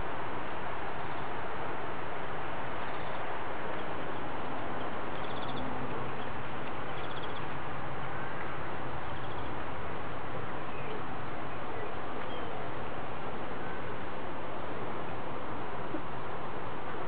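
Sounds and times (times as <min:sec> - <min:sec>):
steady background noise: 0:00.0 - 0:17.0
birds trilling: 0:04.1 - 0:08.4.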